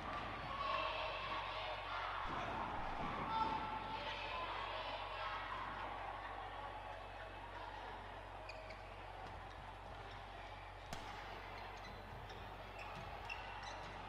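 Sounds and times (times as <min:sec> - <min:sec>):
shoes squeaking on court: 0:11.4 - 0:14.0.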